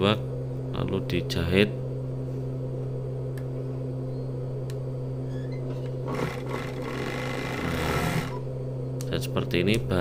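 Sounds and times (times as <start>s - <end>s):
overlock machine motor hum: 1.8s - 9.0s.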